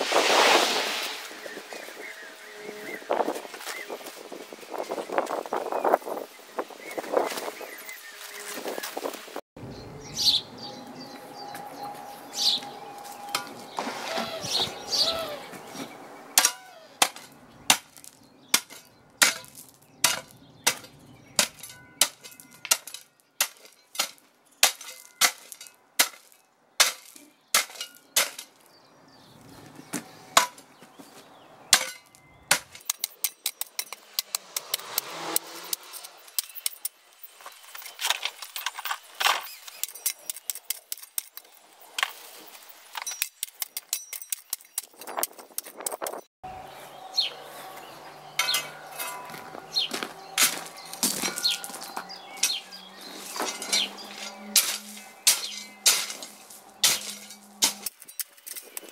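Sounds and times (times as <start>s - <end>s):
blade scraping on stones: 12.4s - 28.8s, 31.7s - 46.3s, 48.3s - 58.9s
spade chopping into gravelly soil: 16.4s - 28.6s, 31.7s - 42.3s, 48.4s - 58.9s.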